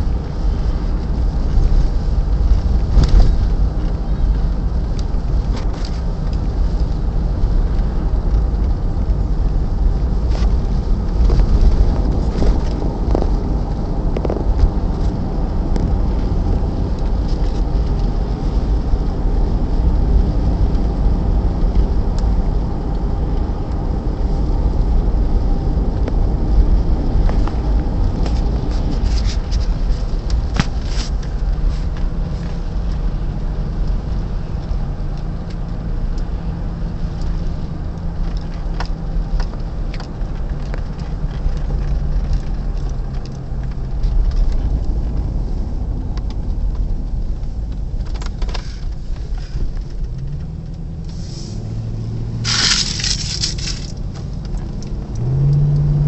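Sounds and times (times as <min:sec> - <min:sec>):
low engine hum: 0:00.0 - 0:56.0
road rumble: 0:00.0 - 0:56.0.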